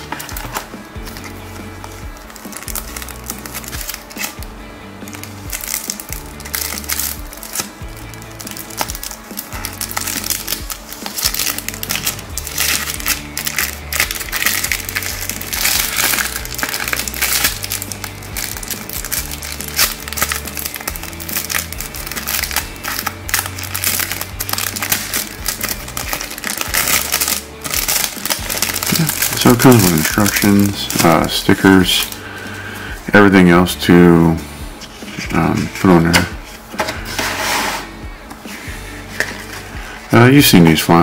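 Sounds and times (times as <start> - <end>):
plastic bag crinkling: 0.0 - 32.3
background music: 0.0 - 41.0.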